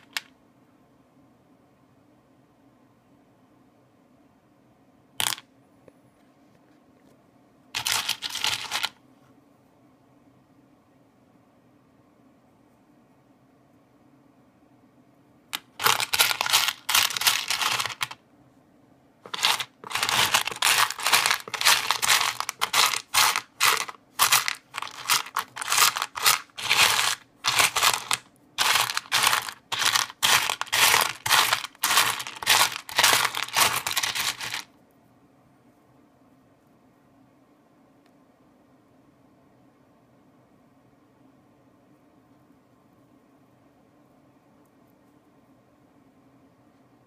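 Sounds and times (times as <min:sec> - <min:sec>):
pebbles clattering and grinding: 0:00.0 - 0:00.3, 0:07.8 - 0:09.0, 0:15.6 - 0:18.2, 0:19.3 - 0:34.7.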